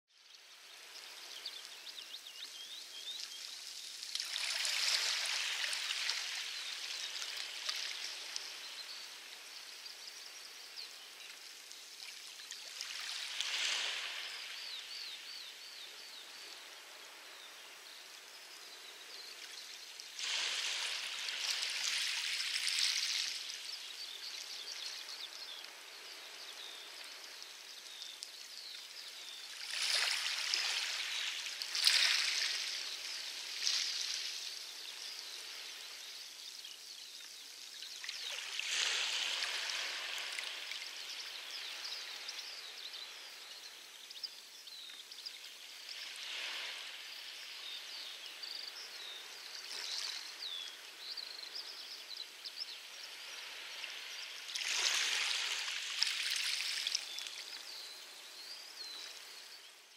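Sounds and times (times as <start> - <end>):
waves washing onto pebbles: 2.7 - 10.2, 11.2 - 14.9, 19.5 - 36.0, 37.6 - 42.4, 53.3 - 57.7.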